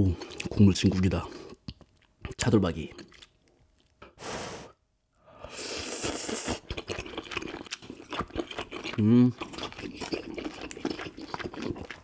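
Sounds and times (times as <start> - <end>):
person slurping: 4.0 - 12.0
wet chewing clicks: 6.6 - 12.0.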